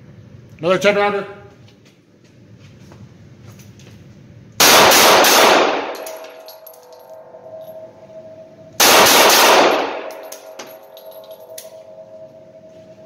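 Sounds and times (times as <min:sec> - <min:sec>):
pistol shots echoing indoors: 0:04.6 - 0:07.9, 0:08.8 - 0:12.1.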